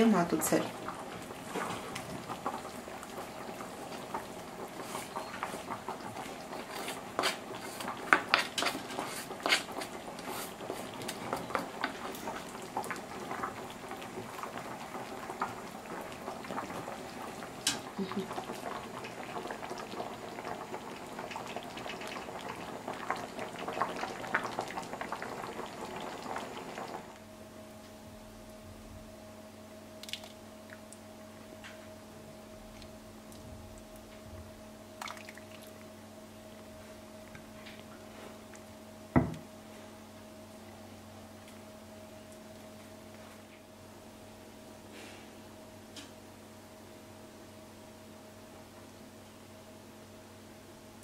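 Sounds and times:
soup bubbling and popping: 0.7s - 27.2s, 30.0s - 31.3s, 34.9s - 39.4s.

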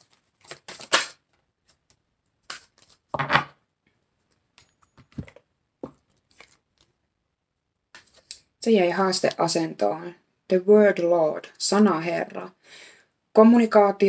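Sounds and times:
cards being shuffled: 0.0s - 3.2s, 4.5s - 6.9s, 7.9s - 8.3s.

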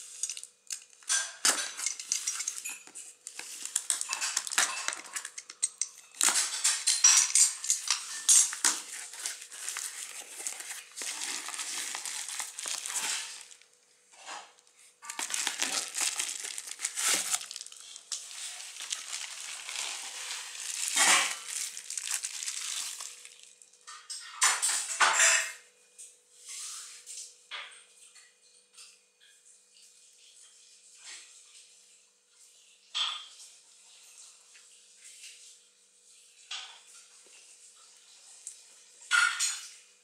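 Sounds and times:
bubble wrap crinkling: 0.0s - 13.8s, 15.0s - 23.8s.

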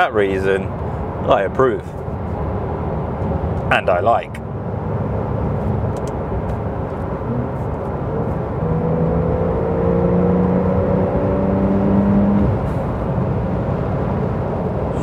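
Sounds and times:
road noise: 0.0s - 15.0s
car engine accelerating: 4.8s - 15.0s.

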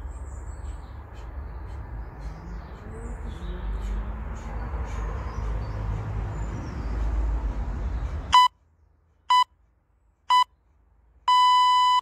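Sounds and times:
short electronic beeps: 8.3s - 8.5s, 11.3s - 12.0s.

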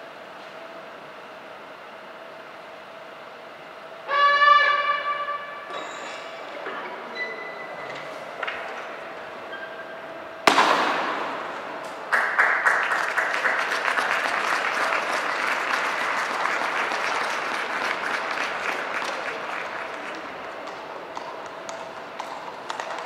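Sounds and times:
loud crash: 10.4s - 11.9s
crowd applauding: 11.2s - 23.0s.

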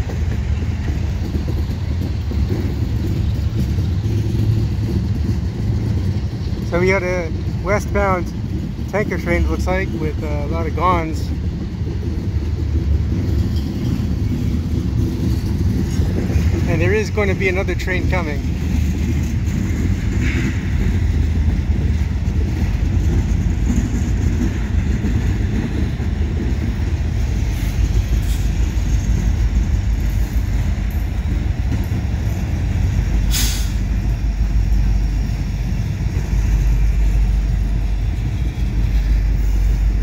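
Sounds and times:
train wheels rumbling on rail: 0.0s - 40.0s
freight car clank: 13.1s - 36.3s.

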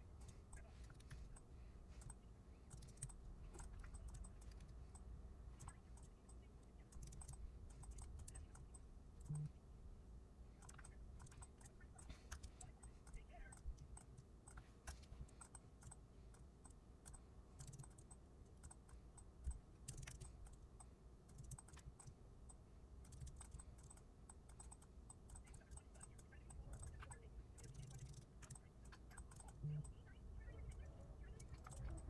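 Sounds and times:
low background hum: 0.0s - 32.0s
keyboard typing clicks: 0.1s - 9.5s, 10.6s - 32.0s.

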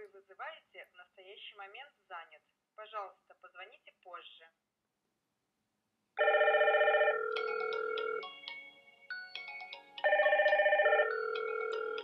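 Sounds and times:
electronic intercom ringtone: 6.2s - 8.4s, 10.0s - 12.0s.

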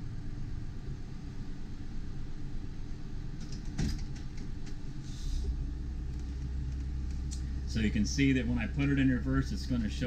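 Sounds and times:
engine idling: 0.0s - 10.0s.

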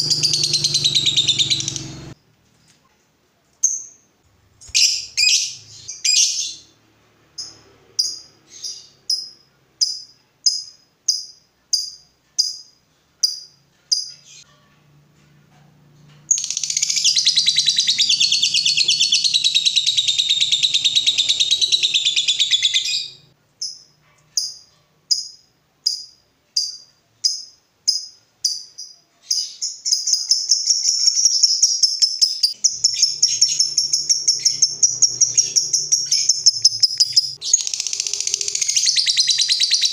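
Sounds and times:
lovebird chattering trill: 0.0s - 2.2s, 4.7s - 6.6s, 16.3s - 24.6s, 25.9s - 39.9s
lovebird chirping: 0.0s - 2.2s, 3.6s - 14.5s, 16.3s - 39.9s.

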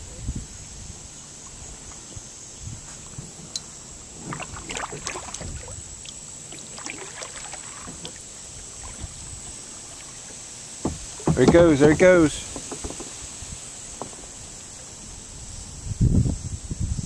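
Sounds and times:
paddle splashes: 2.9s - 15.0s
knocks against kayak hull: 10.8s - 13.2s.

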